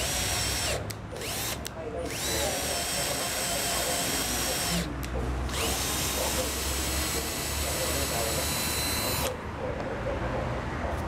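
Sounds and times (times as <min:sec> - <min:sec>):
cordless drill whining: 0:00.0 - 0:09.4.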